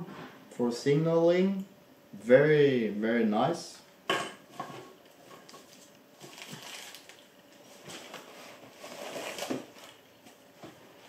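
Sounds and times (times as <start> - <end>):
packaging rustling: 5.0 - 11.0.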